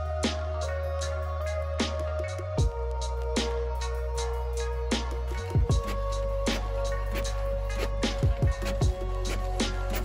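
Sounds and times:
deep sustained bass: 0:00.0 - 0:10.0
electronic music: 0:00.0 - 0:10.0
drum beat: 0:05.0 - 0:10.0.

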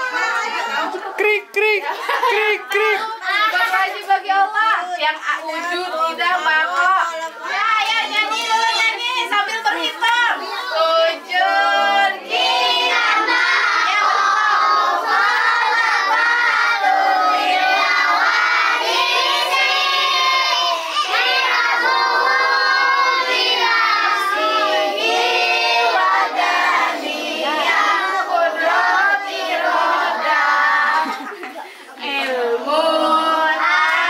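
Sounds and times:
children singing together: 0:10.4 - 0:34.0.

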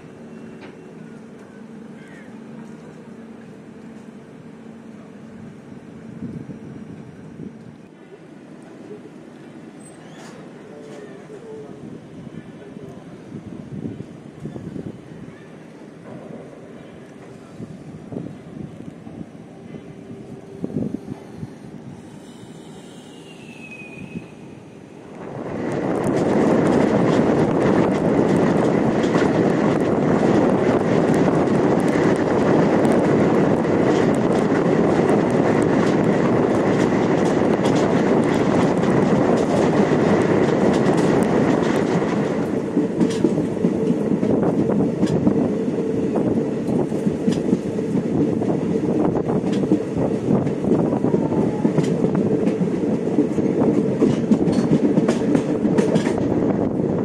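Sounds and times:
train rumbling on rails: 0:00.0 - 0:57.0
wheels clacking over rail joints: 0:25.6 - 0:45.3, 0:51.8 - 0:56.4.

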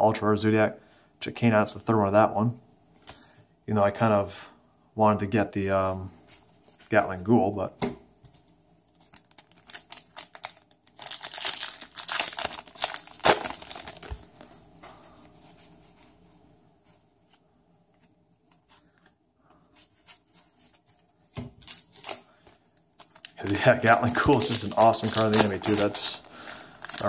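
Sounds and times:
foil wrapper crinkling and tearing: 0:08.9 - 0:14.5, 0:21.6 - 0:27.0.

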